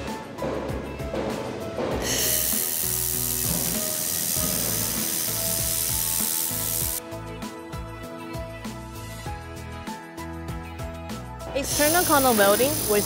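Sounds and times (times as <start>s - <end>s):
laser welder hissing: 2.0s - 7.0s, 11.6s - 13.0s.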